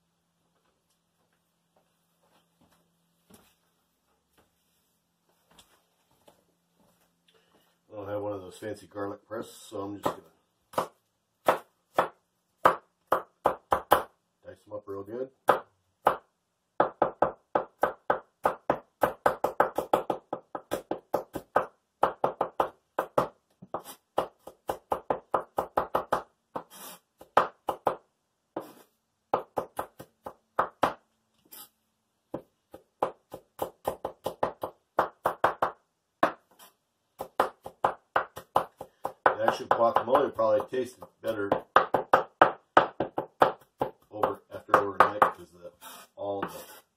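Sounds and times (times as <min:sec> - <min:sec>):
knife chopping on wooden board: 0:10.0 - 0:14.1, 0:16.8 - 0:28.0, 0:32.3 - 0:36.6, 0:37.2 - 0:45.4.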